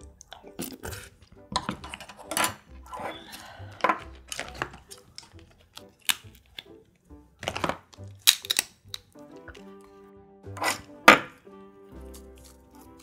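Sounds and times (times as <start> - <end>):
person chewing: 0.0 - 10.0, 11.8 - 13.0
crab shell clicks: 4.0 - 6.8, 7.4 - 9.7.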